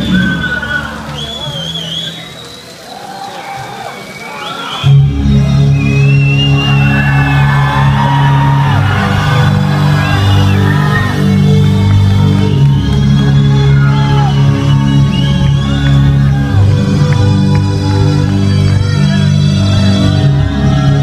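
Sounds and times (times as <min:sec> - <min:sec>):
crowd shouting and whooping: 0:00.0 - 0:21.0
loud music over pa: 0:04.8 - 0:21.0.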